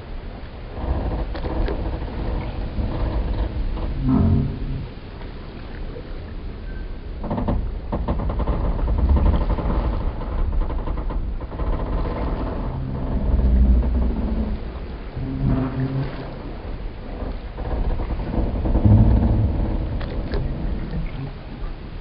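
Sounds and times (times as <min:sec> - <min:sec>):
water rumbling against pilings: 0:00.0 - 0:22.0
wooden timbers creaking and groaning: 0:00.7 - 0:05.0, 0:07.0 - 0:21.4.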